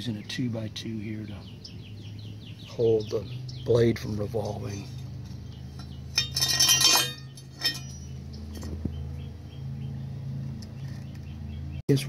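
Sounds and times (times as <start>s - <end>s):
metal blade clinking on concrete: 5.8s - 8.2s.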